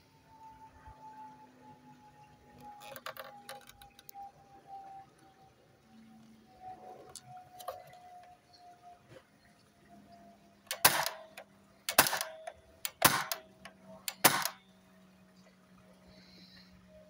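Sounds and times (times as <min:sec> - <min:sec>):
airgun shots: 0:10.7 - 0:14.6.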